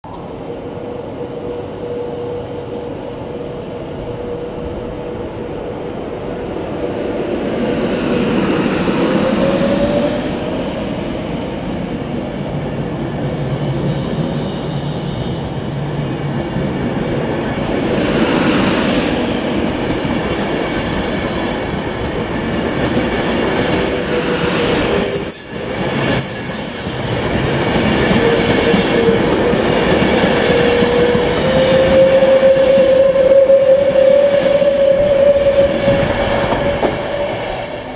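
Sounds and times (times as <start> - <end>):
electric train whine: 0.1 - 37.9.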